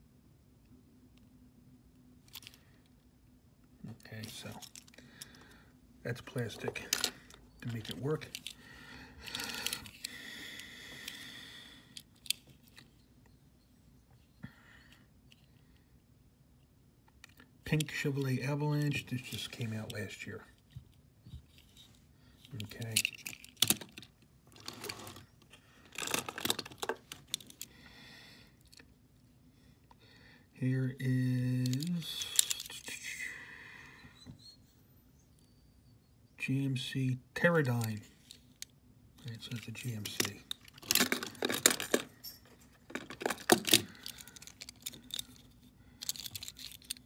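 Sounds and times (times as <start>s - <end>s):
soft rustle of handling: 17.8s - 27.7s
metal toy trucks clattering: 40.1s - 45.4s.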